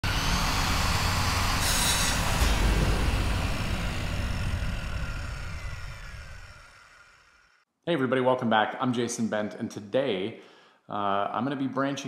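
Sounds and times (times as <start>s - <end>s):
low rumbling: 0.0s - 7.4s
burst of hiss: 1.5s - 4.5s
deep boom: 1.8s - 6.6s.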